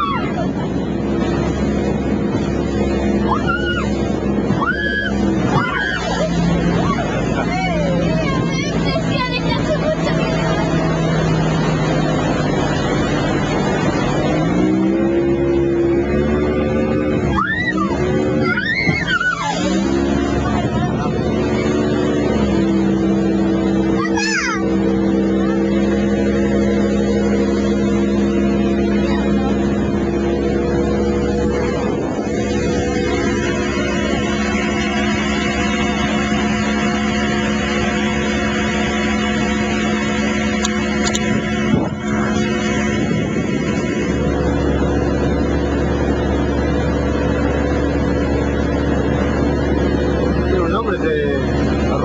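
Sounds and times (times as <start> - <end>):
wind rumble on microphone: 0.0 - 24.0, 24.9 - 52.0
motorboat engine running: 0.0 - 52.0.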